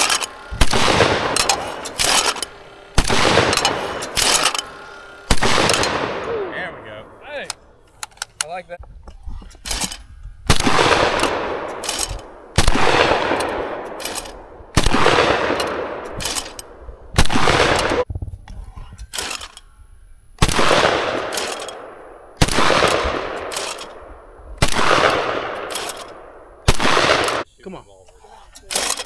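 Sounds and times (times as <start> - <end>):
shotgun shots: 0.0 - 7.1, 9.6 - 18.1, 20.4 - 27.5.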